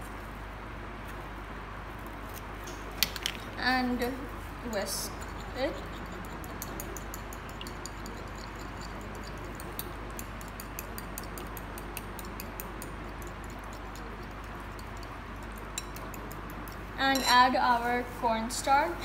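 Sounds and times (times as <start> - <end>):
fork whisking egg in bowl: 4.7 - 17.5.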